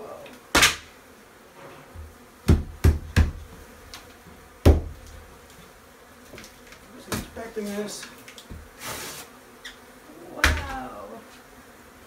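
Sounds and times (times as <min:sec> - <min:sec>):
honey bees buzzing: 0:00.0 - 0:12.0.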